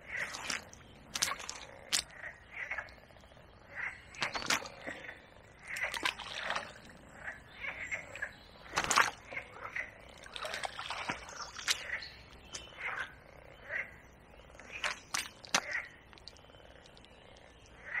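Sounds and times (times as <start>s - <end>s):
frogs croaking: 0.0s - 18.0s.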